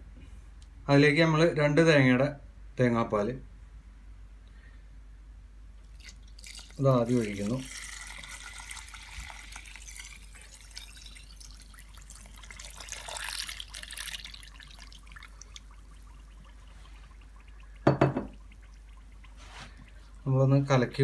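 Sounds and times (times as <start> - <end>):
liquid pouring and splashing: 5.9 - 20.9.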